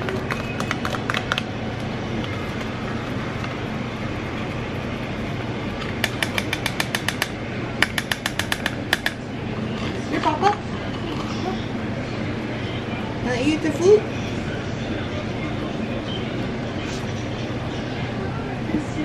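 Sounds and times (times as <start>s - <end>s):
steady low hum: 0.0s - 19.0s
rapid taps: 6.0s - 9.2s.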